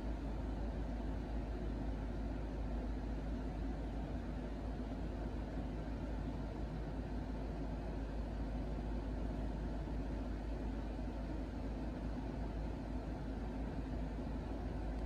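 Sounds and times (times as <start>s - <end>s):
steady low hum with hiss: 0.0s - 15.0s.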